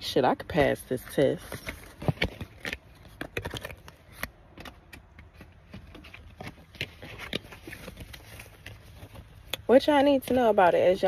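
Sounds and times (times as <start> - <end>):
handling clicks and rustles: 0.4 - 11.0.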